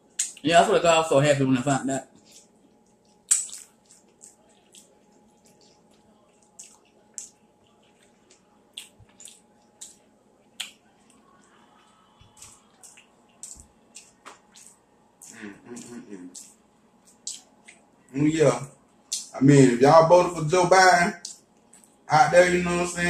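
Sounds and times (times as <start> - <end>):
mouth clicks and smacks: 0.1 - 0.5, 2.2 - 11.2, 11.8 - 17.9, 19.1 - 19.3, 21.2 - 22.0
wet chewing: 2.1 - 17.9.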